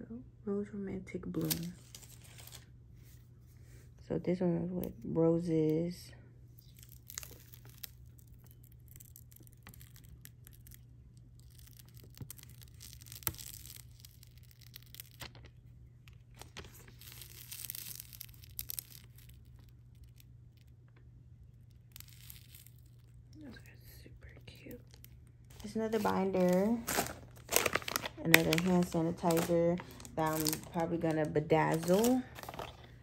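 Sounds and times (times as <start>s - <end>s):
packaging rustling: 1.4s - 2.7s, 11.4s - 20.2s, 24.2s - 33.0s.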